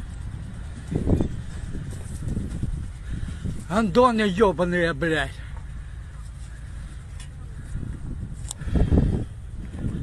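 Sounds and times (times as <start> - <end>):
wind on microphone: 0.0 - 4.1, 6.8 - 10.0
handling rumble: 0.0 - 10.0.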